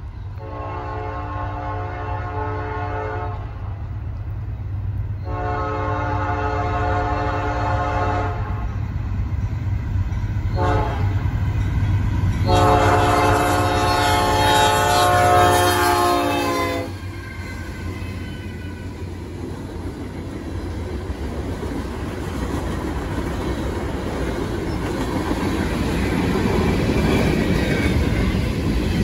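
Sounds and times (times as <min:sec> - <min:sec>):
diesel locomotives rumbling: 0:00.0 - 0:29.0
locomotive air horn blasts: 0:00.4 - 0:03.5, 0:05.2 - 0:08.8, 0:10.6 - 0:11.2, 0:12.4 - 0:19.0.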